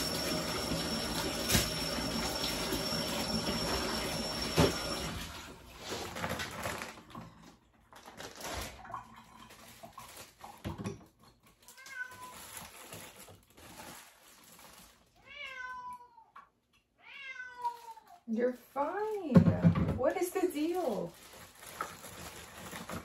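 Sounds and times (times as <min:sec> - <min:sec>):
cat meowing: 0:11.7 - 0:12.6, 0:15.2 - 0:16.4, 0:17.0 - 0:18.2.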